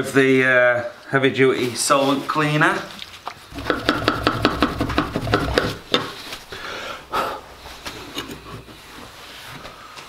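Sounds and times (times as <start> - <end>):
metal plates tapping and knocking: 3.5 - 6.3
cloth rubbing metal plates: 3.5 - 9.5.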